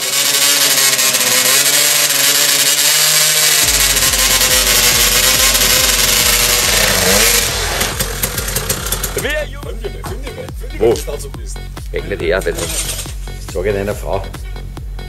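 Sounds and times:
motorcycle engine revving: 0.0 - 11.1, 11.9 - 13.8
background music with steady beat: 3.6 - 15.0.

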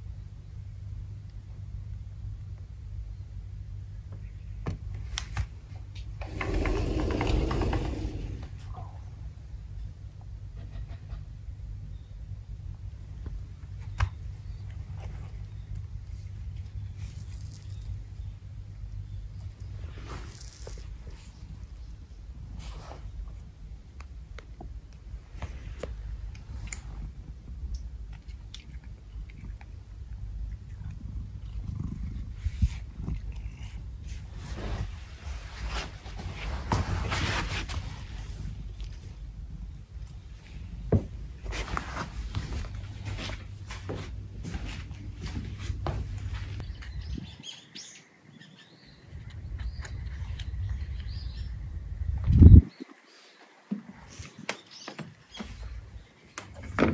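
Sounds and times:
small birds chirping: 10.6 - 22.4, 45.2 - 56.6
cat chewing: 27.6 - 34.2.

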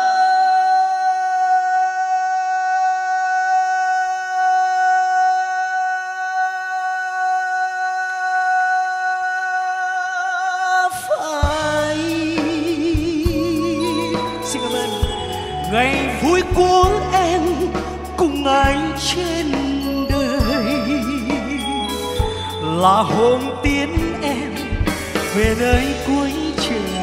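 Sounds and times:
man singing: 0.0 - 27.0
live band with bass and drums: 11.4 - 27.0.

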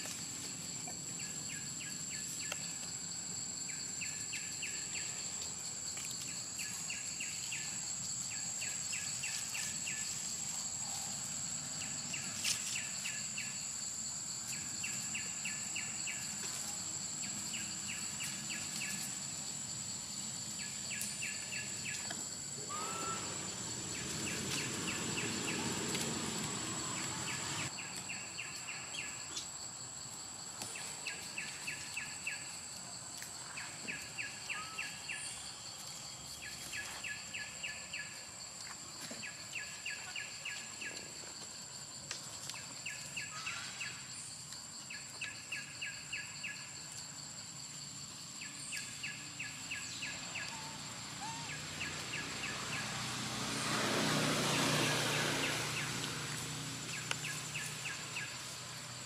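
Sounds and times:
insect chirps: 0.0 - 59.0
insects droning: 0.0 - 59.0.

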